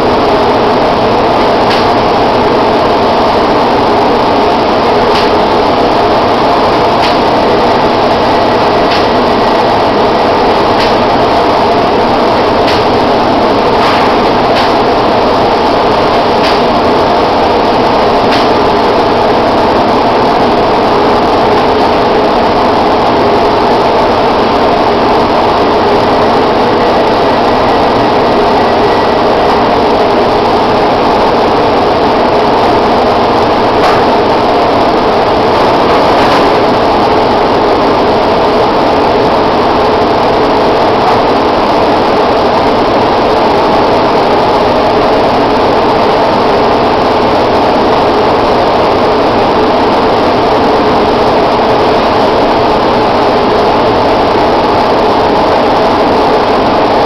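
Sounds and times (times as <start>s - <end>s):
paint sprayer drone: 0.0s - 57.0s.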